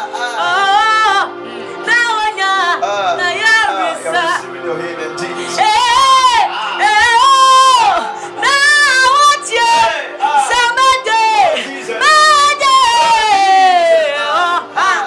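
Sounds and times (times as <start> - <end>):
woman singing gospel song: 0.0 - 4.4, 5.2 - 15.0
sustained backing music: 0.0 - 15.0.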